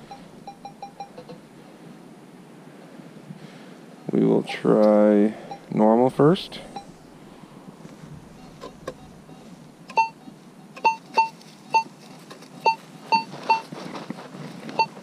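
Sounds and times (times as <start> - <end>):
metal detector beeps: 0.0 - 1.4, 5.4 - 5.8, 6.6 - 7.1, 8.4 - 11.9, 12.6 - 13.7, 14.7 - 15.0.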